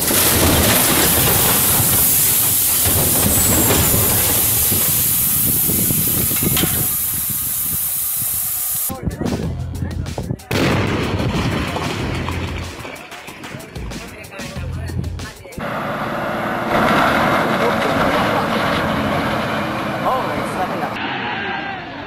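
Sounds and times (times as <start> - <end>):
boulders crashing rushing hiss: 0.0 - 8.9.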